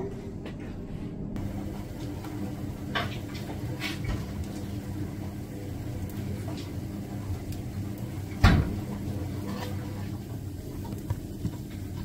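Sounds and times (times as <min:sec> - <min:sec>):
appliance motor humming: 0:01.4 - 0:12.0.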